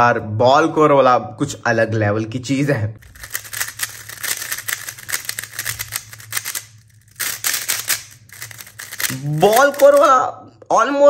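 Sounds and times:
speed cube plastic clicks: 3.0s - 10.1s.

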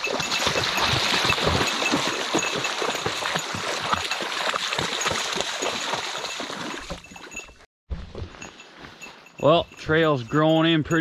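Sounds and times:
footsteps splashing in shallow water: 0.0s - 7.4s
brush rustling against body: 8.1s - 9.4s.

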